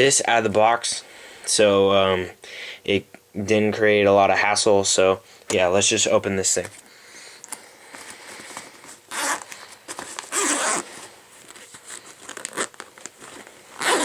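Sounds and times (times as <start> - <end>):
zipper rasping open: 8.9 - 14.0.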